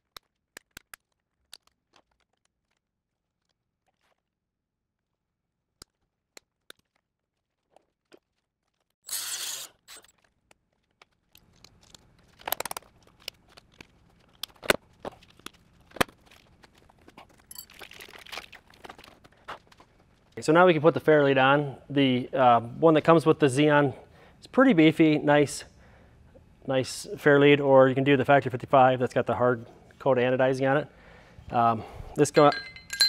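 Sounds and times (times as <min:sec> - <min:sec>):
hand tools and parts clicking: 0:09.1 - 0:10.6, 0:32.4 - 0:33.0.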